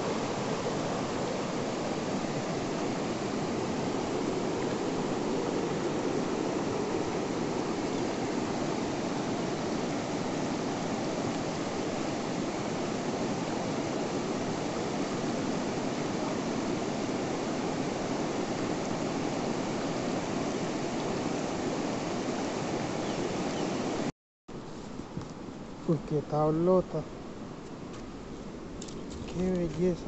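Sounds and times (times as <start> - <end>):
river water rushing over rocks: 0.0 - 24.1.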